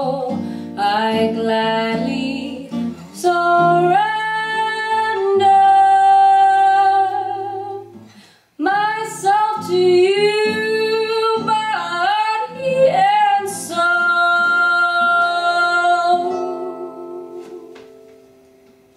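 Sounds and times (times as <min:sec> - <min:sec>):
woman singing: 0:00.0 - 0:08.0, 0:08.6 - 0:18.0
strummed acoustic guitar: 0:09.0 - 0:18.9.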